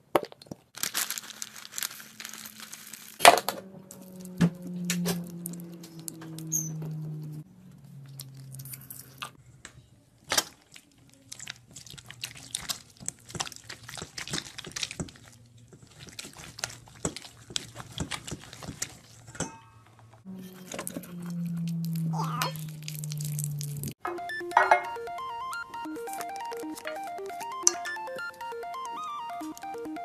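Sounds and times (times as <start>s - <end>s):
slime clicks and crackles: 0.2s - 4.0s, 10.2s - 19.2s, 21.2s - 24.0s
slime squelching: 0.2s - 9.4s, 10.2s - 19.4s, 20.2s - 24.0s.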